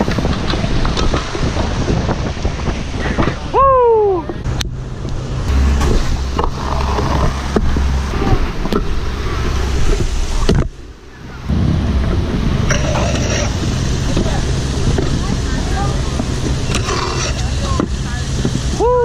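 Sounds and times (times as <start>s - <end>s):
scooter wheels rolling over pavers: 5.8s - 10.4s, 12.6s - 18.6s.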